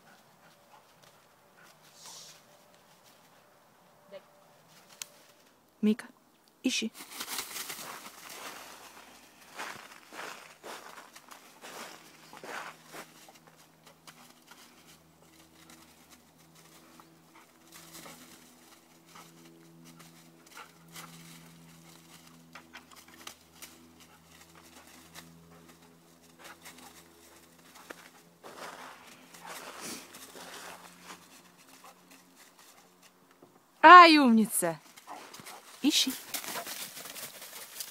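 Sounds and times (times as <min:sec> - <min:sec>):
pawing through dry leaves: 0:07.0 - 0:33.2, 0:34.8 - 0:37.9.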